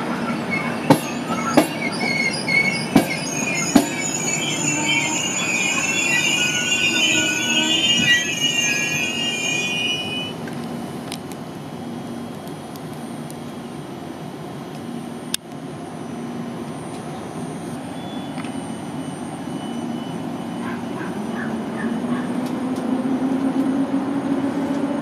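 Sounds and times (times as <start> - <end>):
train wheel squeal: 0.0 - 10.4, 17.3 - 22.4
train rumble and hum: 0.0 - 25.0.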